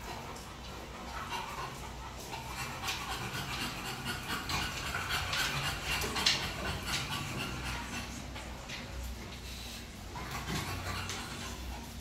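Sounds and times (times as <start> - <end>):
dog claws clicking on floor: 2.4 - 9.4.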